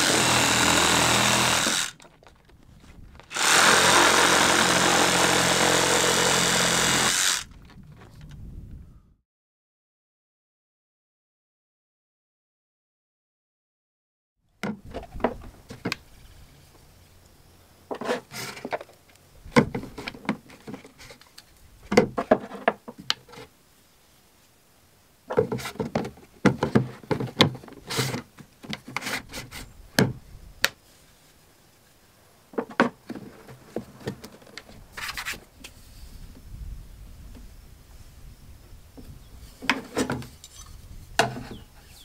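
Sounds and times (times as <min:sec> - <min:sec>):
plastic knocking and scraping on wood: 0:14.6 - 0:16.0, 0:19.5 - 0:21.3, 0:21.9 - 0:23.5, 0:25.3 - 0:30.2, 0:32.5 - 0:35.4, 0:41.2 - 0:41.6.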